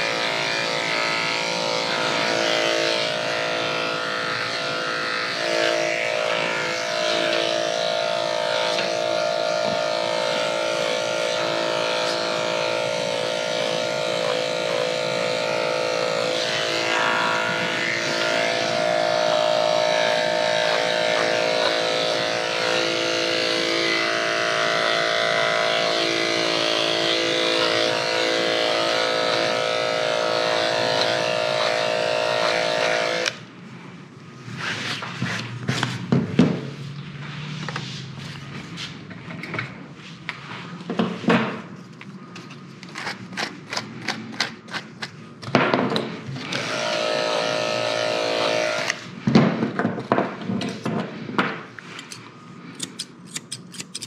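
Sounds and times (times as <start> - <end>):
electric clippers buzzing: 0.0 - 33.5, 46.0 - 49.2.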